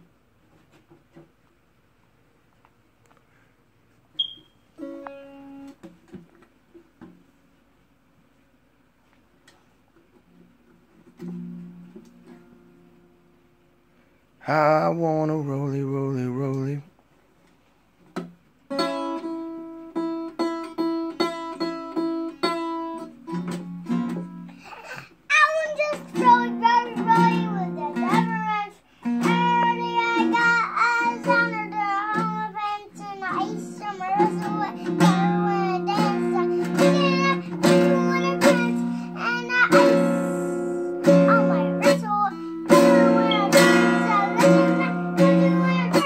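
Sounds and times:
acoustic guitar strumming: 0:04.2 - 0:05.9, 0:18.7 - 0:24.7, 0:25.3 - 0:46.0
child singing: 0:25.3 - 0:46.0.

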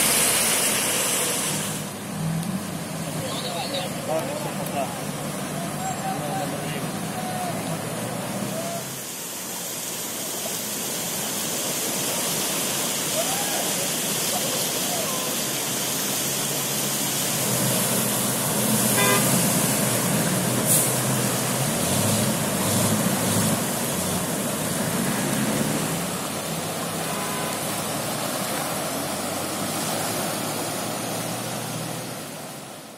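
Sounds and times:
vehicle engines running: 0:00.0 - 0:32.9
water rushing and splashing: 0:00.0 - 0:32.9
short car horn toot: 0:19.0 - 0:19.3, 0:27.0 - 0:27.6.

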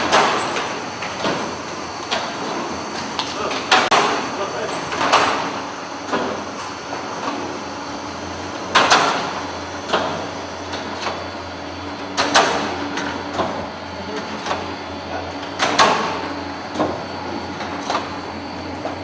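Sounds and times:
sharp mechanical clacks and knocks: 0:00.0 - 0:01.5, 0:02.1 - 0:06.4, 0:08.6 - 0:11.2, 0:12.1 - 0:14.7, 0:15.4 - 0:17.0
machinery humming: 0:00.0 - 0:19.0.

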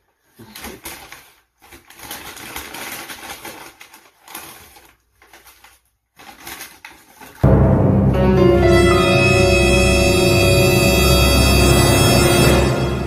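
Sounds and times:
paper bag rustling and crinkling: 0:00.0 - 0:07.4.

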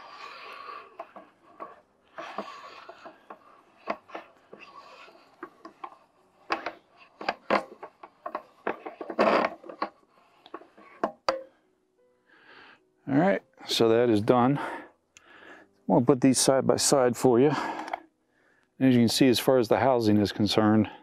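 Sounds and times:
scrape: 0:00.0 - 0:11.0
telescope parts clicking and rubbing: 0:00.0 - 0:11.5, 0:17.6 - 0:18.1.

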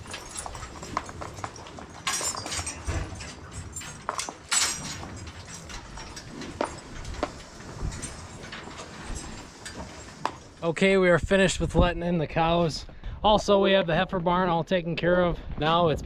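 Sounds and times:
hooves scuffing on concrete: 0:00.0 - 0:10.5
cows knocking at headlocks: 0:00.0 - 0:10.6.

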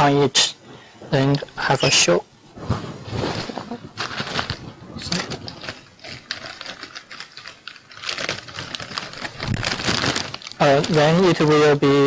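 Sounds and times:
paper rustling and crinkling: 0:02.6 - 0:11.5.

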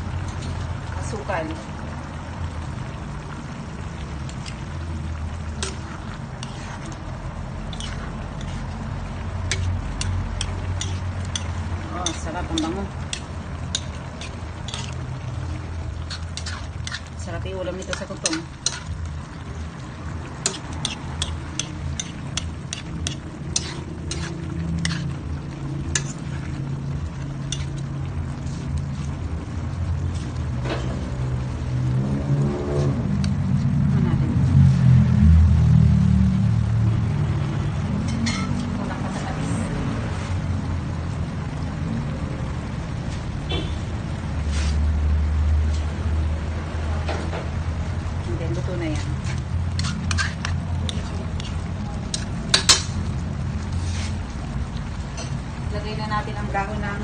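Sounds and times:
liquid simmering in metal pan: 0:00.0 - 0:57.0
spatula clicking against pan: 0:09.5 - 0:14.9, 0:20.4 - 0:24.2.

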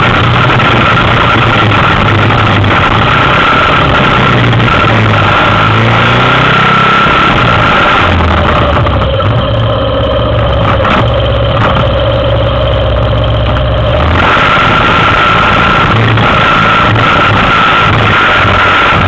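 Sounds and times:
atv engine idling: 0:08.2 - 0:14.1.

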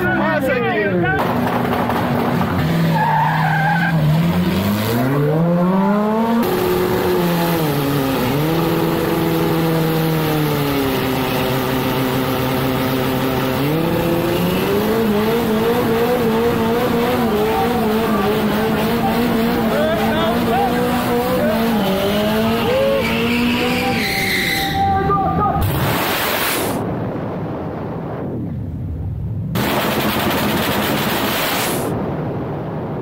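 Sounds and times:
race car engine revving: 0:01.2 - 0:24.9, 0:25.6 - 0:26.8.

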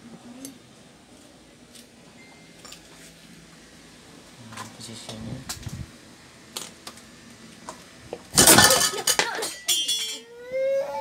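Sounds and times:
metal parts clattering on table: 0:08.4 - 0:10.2
baby crying: 0:10.2 - 0:11.0.

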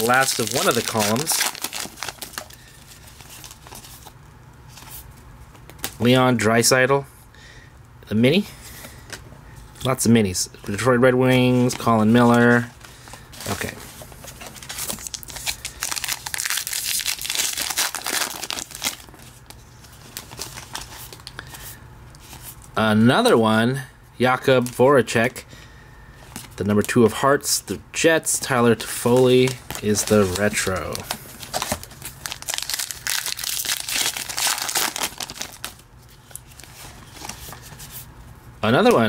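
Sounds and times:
wrapper tearing and crinkling: 0:00.0 - 0:04.1, 0:14.5 - 0:21.4, 0:29.4 - 0:37.4.

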